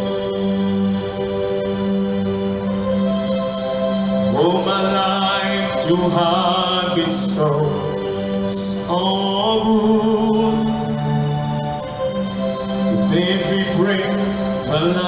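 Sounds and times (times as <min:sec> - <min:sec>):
keyboard pad chords: 0:00.0 - 0:15.0
man singing wordless melody: 0:04.2 - 0:11.4, 0:12.9 - 0:15.0.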